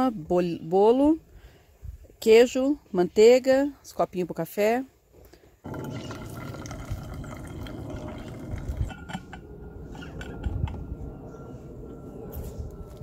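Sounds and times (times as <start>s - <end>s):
water trickling into filter: 5.7s - 9.2s.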